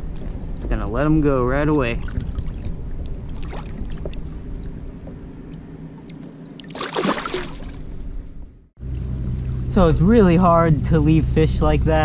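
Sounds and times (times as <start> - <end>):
water splashing and dripping: 1.7 - 4.7, 6.0 - 7.8.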